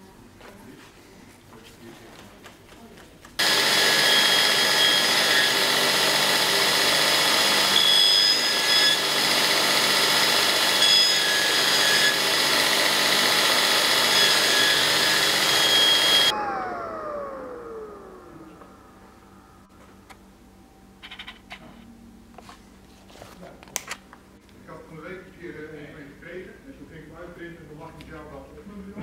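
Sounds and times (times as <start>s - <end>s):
belt grinder grinding knife: 3.4s - 16.3s
motor winding down whine: 3.4s - 19.7s.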